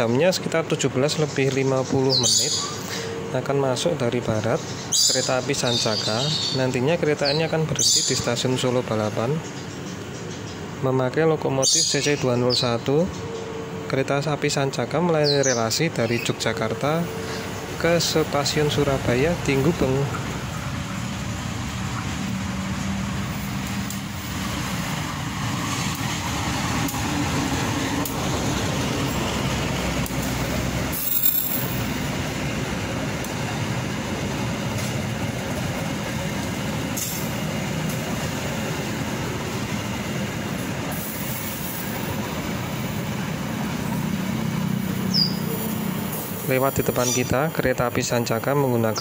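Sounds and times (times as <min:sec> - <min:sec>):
locomotive engine running: 0:00.0 - 0:47.5
wheels on rails: 0:16.9 - 0:47.2.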